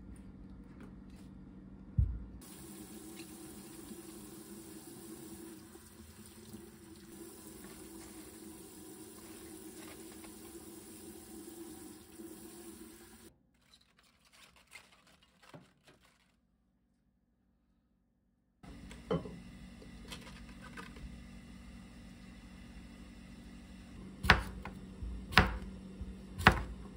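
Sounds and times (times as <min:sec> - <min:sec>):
kitchen tap running: 0:02.4 - 0:13.3
rustling of cabbage leaves: 0:13.5 - 0:16.5.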